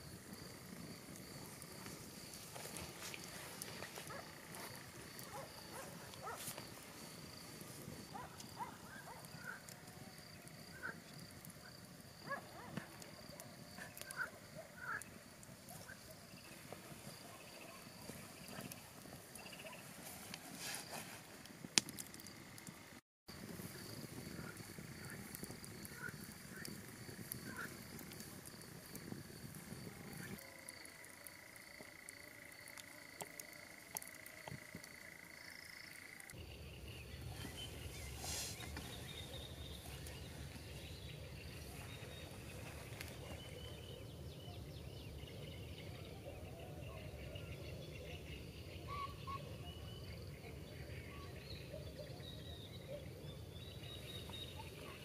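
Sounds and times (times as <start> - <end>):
high insect trill: 0.0 - 45.9
campfire crackling and popping: 0.0 - 50.7
steady insect tone: 0.0 - 55.0
birds chirping: 1.5 - 20.5, 34.6 - 55.0.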